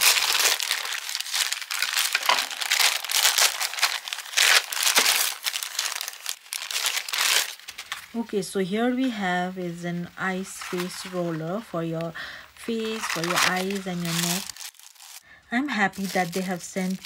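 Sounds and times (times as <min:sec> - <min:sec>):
packaging crinkling: 0:00.0 - 0:08.2, 0:12.7 - 0:15.2, 0:15.9 - 0:17.0.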